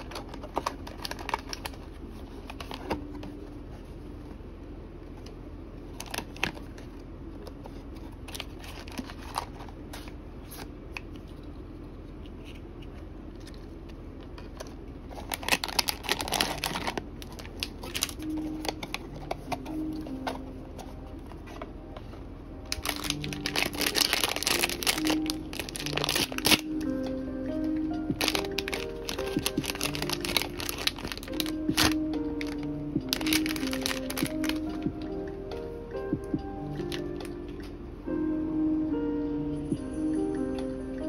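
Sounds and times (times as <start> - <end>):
plastic bag crinkling: 0.0 - 3.2, 8.2 - 10.7, 13.2 - 21.6, 22.7 - 27.0, 28.1 - 34.9.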